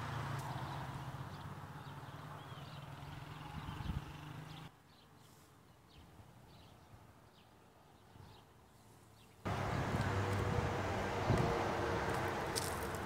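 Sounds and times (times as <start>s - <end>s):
small birds chirping: 0.4s - 10.2s.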